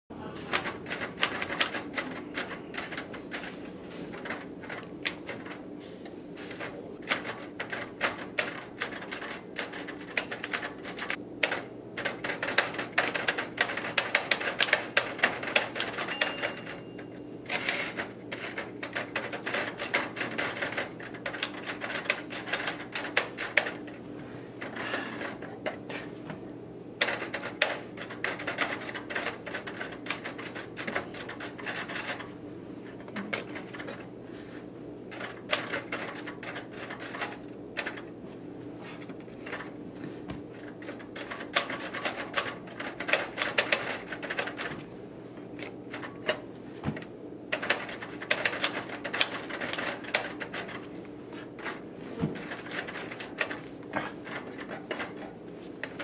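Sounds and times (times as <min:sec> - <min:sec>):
typewriter keys clacking: 0:00.5 - 0:05.6, 0:06.4 - 0:24.0, 0:27.0 - 0:32.3, 0:35.1 - 0:38.1, 0:40.5 - 0:44.7, 0:47.5 - 0:50.9, 0:52.4 - 0:56.0.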